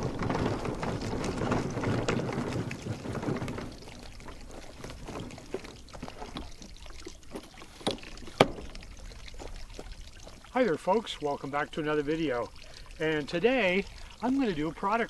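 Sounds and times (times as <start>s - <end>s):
wheels rolling over mulch and dirt: 0.0s - 15.0s.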